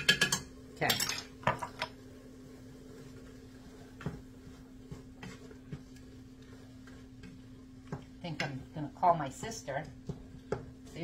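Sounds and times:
kitchen utensils clinking: 0:00.0 - 0:01.9.

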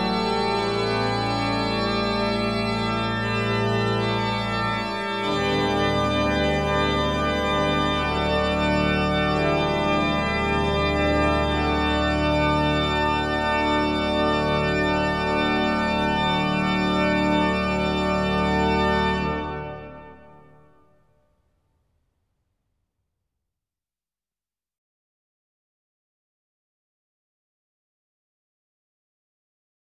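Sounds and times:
music of long held chords: 0:00.0 - 0:21.1.

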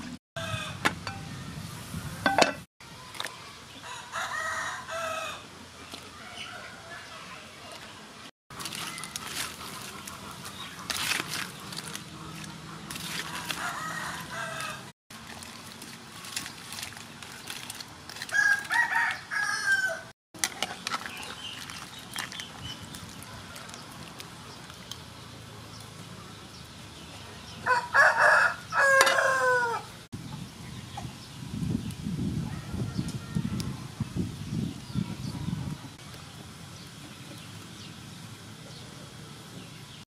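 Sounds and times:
rooster crowing: 0:03.8 - 0:05.4, 0:13.3 - 0:14.9, 0:18.3 - 0:20.1, 0:27.6 - 0:29.9.

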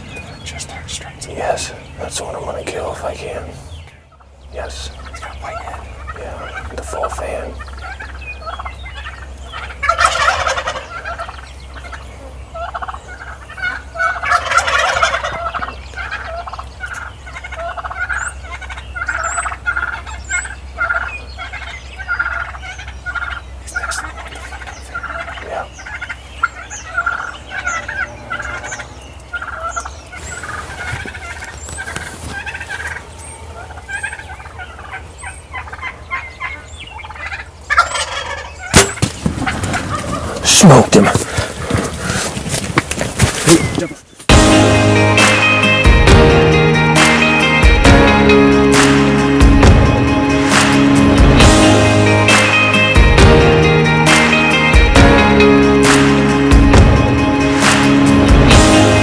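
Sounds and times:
turkeys gobbling: 0:00.0 - 0:59.0
short repeated turkey calls: 0:03.7 - 0:12.0, 0:12.6 - 0:42.2.

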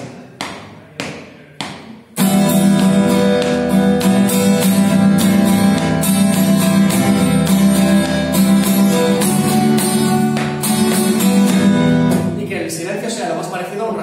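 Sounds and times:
acoustic guitar strumming: 0:02.1 - 0:12.8.

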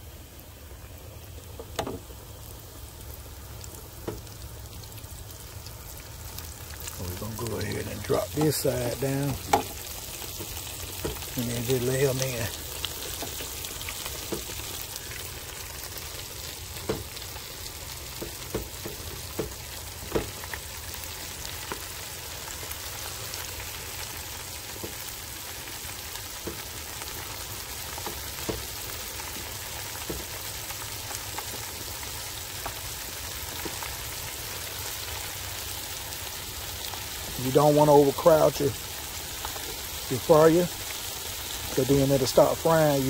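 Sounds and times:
oil sizzling hiss: 0:00.0 - 0:43.0
frying oil pops: 0:01.5 - 0:02.2, 0:03.6 - 0:04.5, 0:05.9 - 0:35.4.

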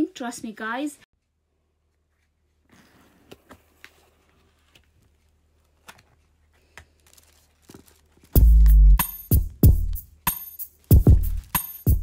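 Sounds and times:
tissue paper rustling: 0:01.9 - 0:08.5, 0:10.7 - 0:12.0
music with drum-machine beat: 0:08.4 - 0:12.0.

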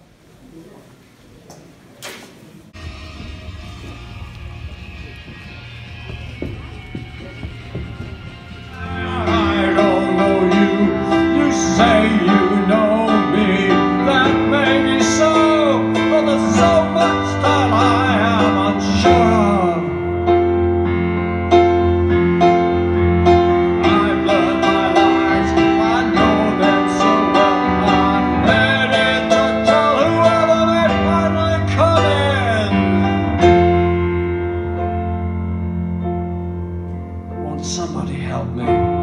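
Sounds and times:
piano chords: 0:02.7 - 0:39.0
man singing: 0:08.7 - 0:20.2, 0:23.2 - 0:34.2, 0:37.3 - 0:39.0.

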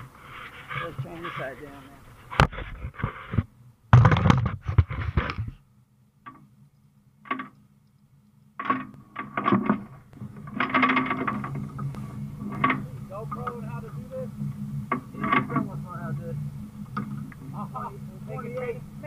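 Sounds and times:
low steady hum: 0:00.0 - 0:19.0
metal chain clanking and rattling: 0:08.6 - 0:11.8.

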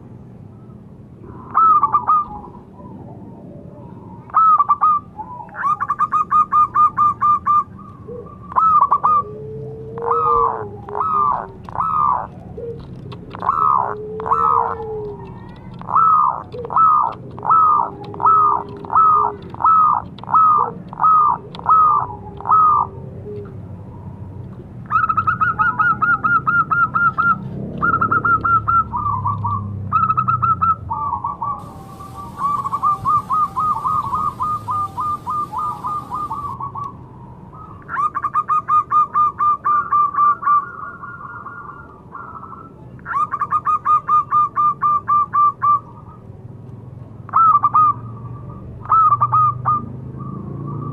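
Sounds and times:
dove cooing: 0:01.3 - 0:24.2, 0:24.9 - 0:36.9.

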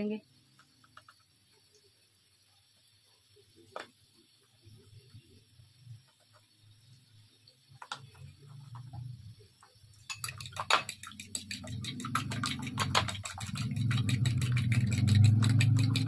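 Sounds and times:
egg beaten in a bowl: 0:09.8 - 0:16.0.

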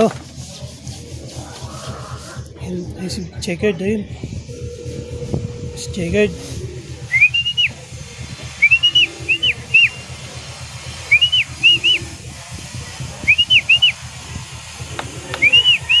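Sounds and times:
person whistling: 0:07.1 - 0:07.8, 0:08.6 - 0:10.0, 0:11.1 - 0:12.0, 0:13.3 - 0:14.0, 0:15.4 - 0:16.0.

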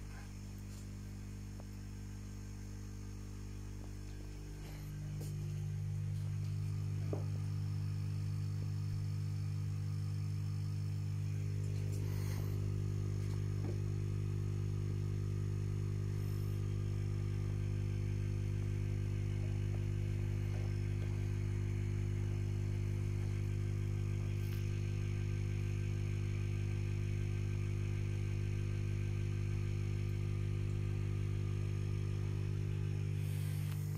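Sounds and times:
low electrical hum: 0:00.0 - 0:33.9.

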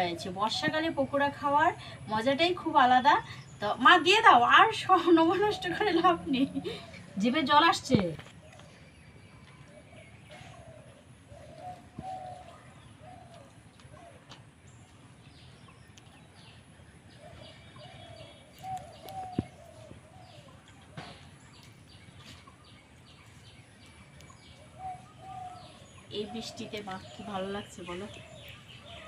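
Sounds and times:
small birds chirping: 0:00.0 - 0:29.0
dove cooing: 0:09.9 - 0:14.4.

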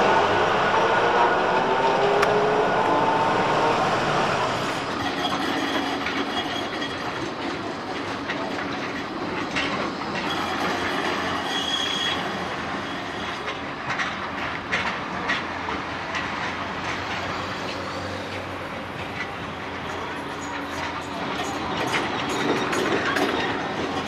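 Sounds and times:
tram rail rumble: 0:00.0 - 0:24.0
high wheel squeals: 0:04.6 - 0:07.2, 0:10.2 - 0:13.5.

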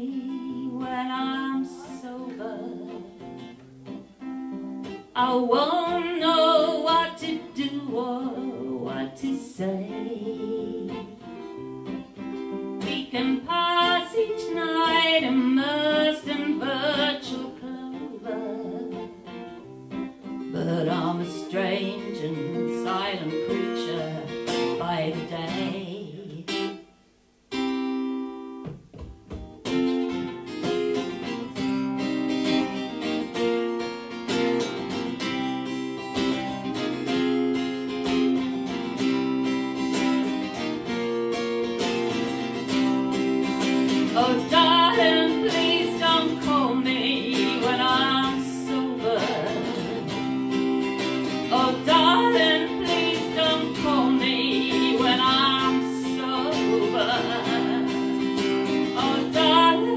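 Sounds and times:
person singing: 0:00.0 - 0:03.2, 0:05.2 - 0:11.2, 0:12.8 - 0:19.1, 0:20.5 - 0:26.7, 0:44.0 - 0:50.5, 0:51.3 - 0:59.9
acoustic guitar strumming: 0:00.0 - 0:59.9.

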